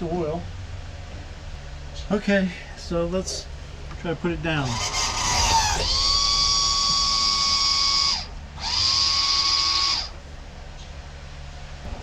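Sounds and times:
electric pump motor whining: 0:04.6 - 0:10.3.

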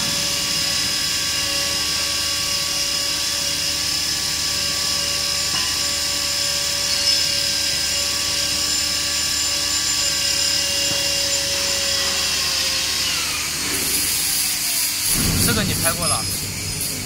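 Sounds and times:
workshop machinery drone: 0:00.0 - 0:17.0
whining tones: 0:08.8 - 0:17.0.

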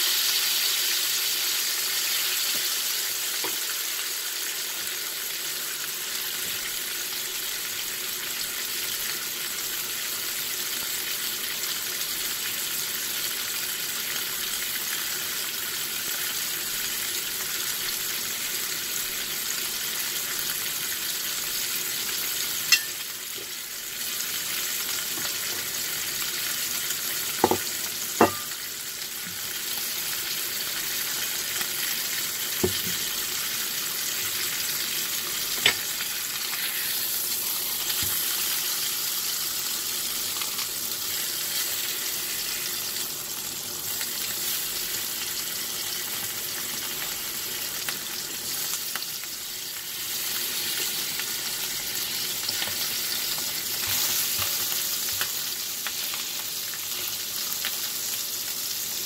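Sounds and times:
meat sizzling in a frying pan: 0:00.0 - 0:59.0
metal tweezers knocking on pan: 0:22.7 - 0:23.0, 0:27.4 - 0:28.5.

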